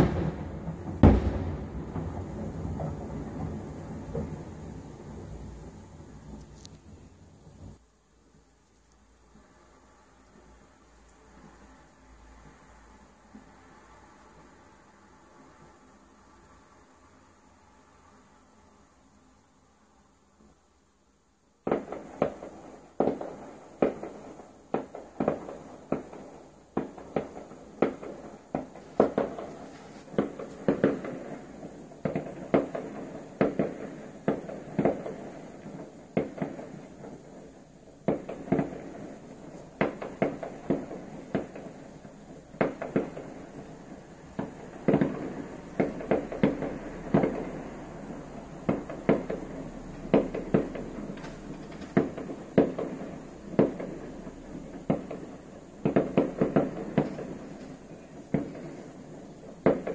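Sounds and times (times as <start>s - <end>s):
fireworks exploding: 0.0s - 7.8s, 21.6s - 59.9s.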